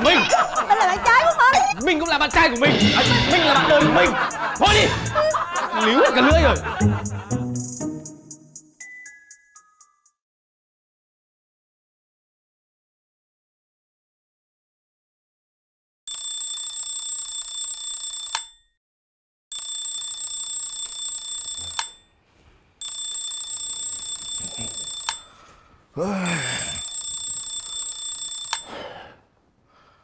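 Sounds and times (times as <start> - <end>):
alarm clock beeping: 19.5 - 22.0, 22.8 - 25.3, 26.8 - 28.7
person groaning: 26.0 - 26.9.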